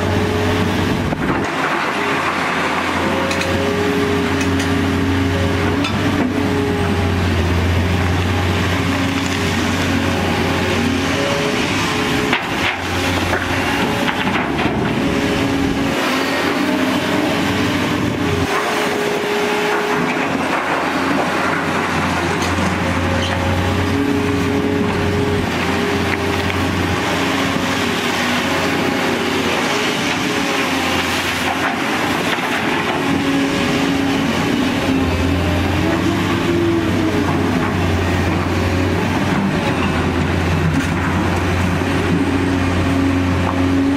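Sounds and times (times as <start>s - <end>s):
excavator diesel engine: 0.0s - 43.9s
hydraulics working: 0.0s - 43.9s.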